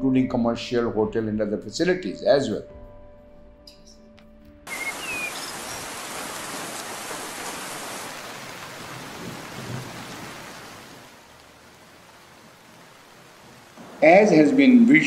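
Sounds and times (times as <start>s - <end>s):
steady rain falling: 4.7s - 15.0s.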